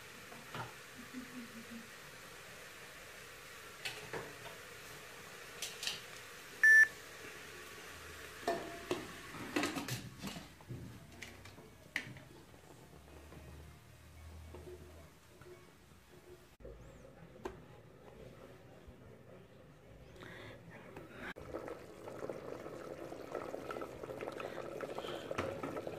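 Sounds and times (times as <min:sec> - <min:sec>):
short electronic beep: 0:06.6 - 0:06.9.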